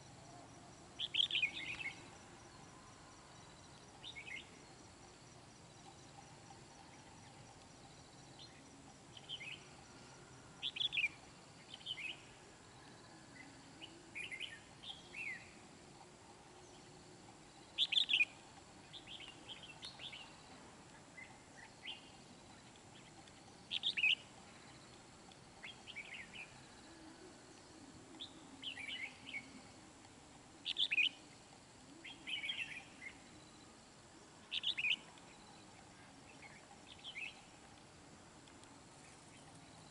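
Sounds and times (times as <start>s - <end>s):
bulbuls chirping: 1.0s - 2.2s, 10.6s - 27.0s, 30.4s - 33.6s, 34.4s - 37.8s.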